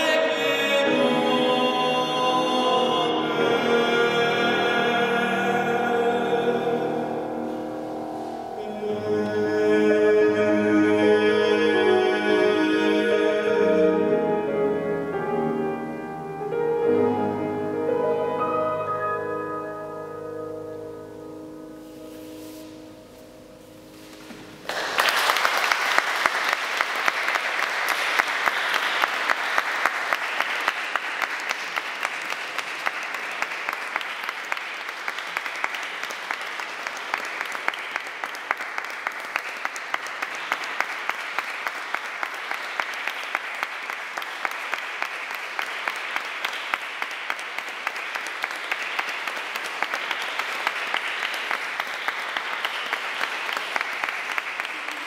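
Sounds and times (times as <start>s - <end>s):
audience applauding: 24.6s - 55.0s.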